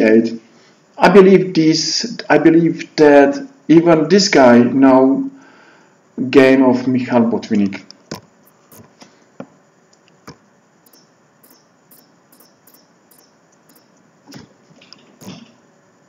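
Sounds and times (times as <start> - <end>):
computer mouse clicks: 8.1 - 8.9, 10.3 - 14.5.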